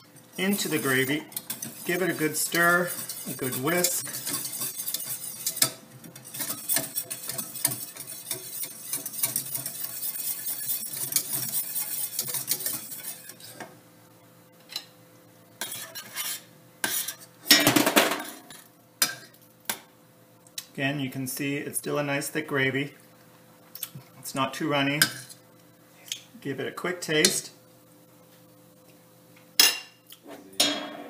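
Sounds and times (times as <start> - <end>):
whisk scraping a steel saucepan: 0.0 - 13.7, 15.6 - 17.3
utensil clatter: 0.4 - 13.6.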